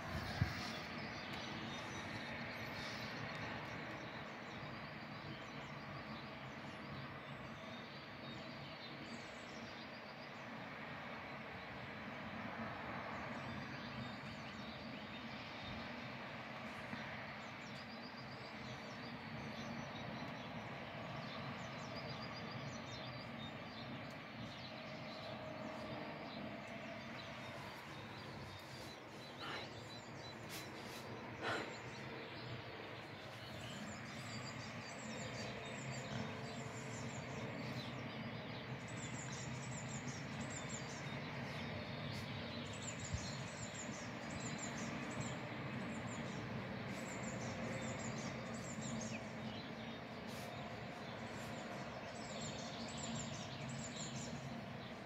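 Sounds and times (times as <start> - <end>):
distant traffic hum: 0.0 - 55.0
birds chirping faintly: 13.0 - 55.0.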